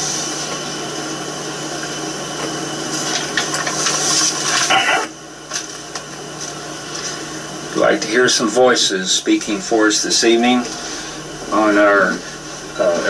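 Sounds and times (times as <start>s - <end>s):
low hum: 8.8s - 13.0s.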